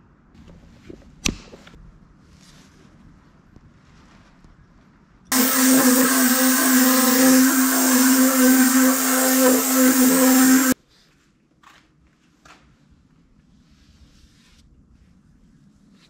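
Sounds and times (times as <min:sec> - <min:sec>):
orbital sander on wood: 0:05.3 - 0:10.8.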